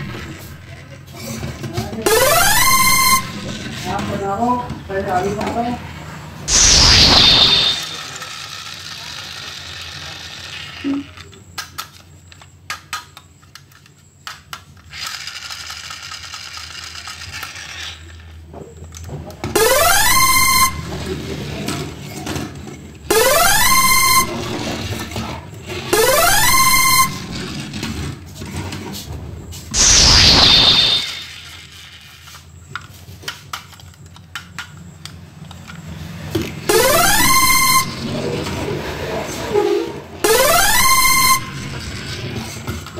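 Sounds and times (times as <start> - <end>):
loud falling whoosh: 6.5 - 7.8, 29.7 - 31.3
loud rising tone: 6.5 - 8.0, 29.8 - 31.3
plastic toy clicks and knocks: 7.9 - 18.0, 32.8 - 35.8.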